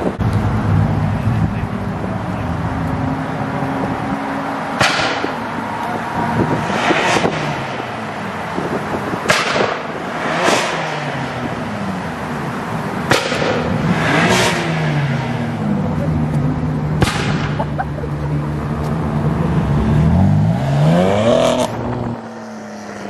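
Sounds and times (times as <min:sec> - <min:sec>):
car engine revving: 0:00.1 - 0:23.0
exhaust pops and crackles: 0:09.2 - 0:10.8, 0:13.0 - 0:13.8.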